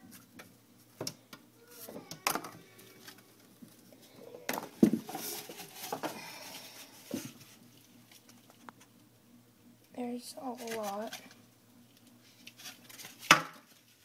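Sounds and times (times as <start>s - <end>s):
cardboard and plastic handling noises: 4.5s - 8.6s, 12.4s - 14.0s.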